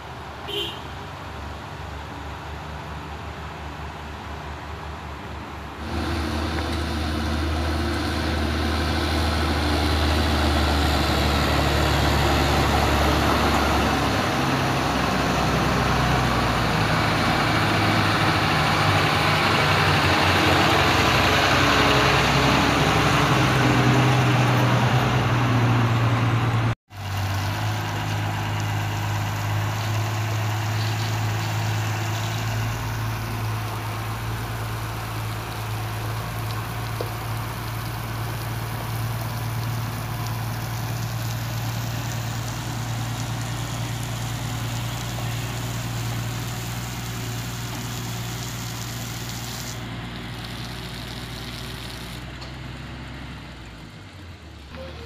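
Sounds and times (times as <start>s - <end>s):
diesel road roller engine: 0.0s - 55.0s
roller rolling over gravel: 5.8s - 15.0s, 26.6s - 52.8s.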